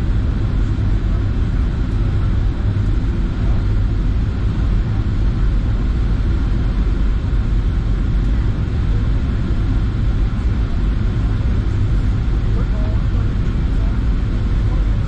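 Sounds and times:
airplane cabin engine drone: 0:00.0 - 0:15.0.

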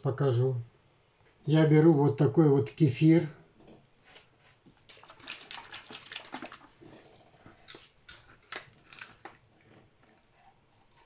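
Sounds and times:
liquid sloshing in plastic bottle: 0:04.0 - 0:11.0.

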